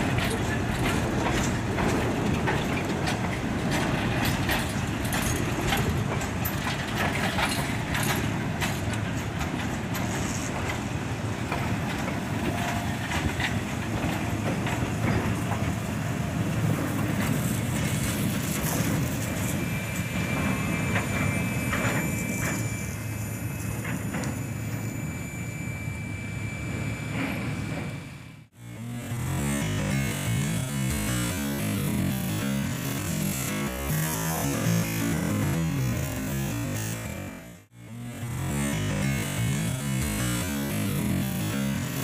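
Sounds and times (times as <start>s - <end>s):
wheels clicking over rail joints: 0.0s - 24.8s, 29.2s - 42.0s
train wheels rumbling: 0.0s - 25.4s
high wheel squeal: 16.9s - 28.4s.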